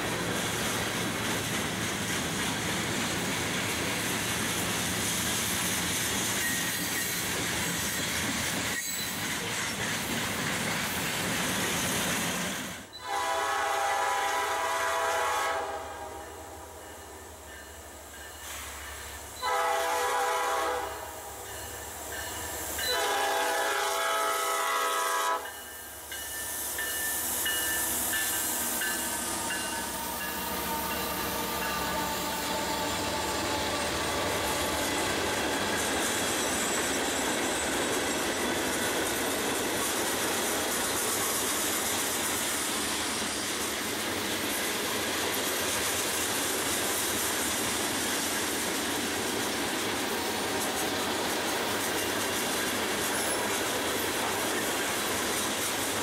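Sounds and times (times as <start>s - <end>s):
freight train rolling by: 0.0s - 56.0s
train horn blast: 13.0s - 16.6s, 19.4s - 21.3s, 22.9s - 25.5s, 29.0s - 34.9s.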